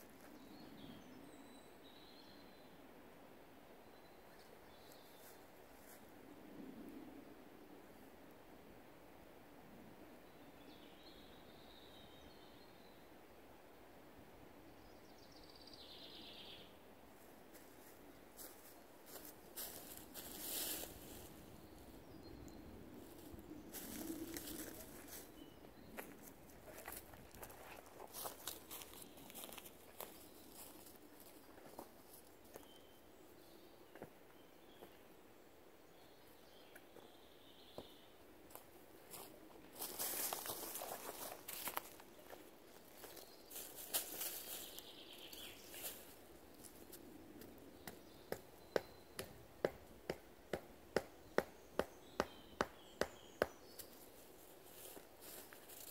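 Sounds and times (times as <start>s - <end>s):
distant birdsong: 14.6s - 55.9s
footsteps on dry leaves: 18.4s - 21.5s, 23.1s - 25.3s, 26.0s - 31.4s, 39.1s - 46.9s, 54.6s - 55.9s.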